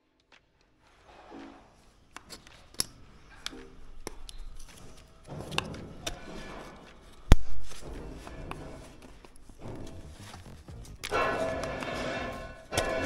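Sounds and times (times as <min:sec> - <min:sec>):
handling taps and knocks: 0:01.3 - 0:13.0.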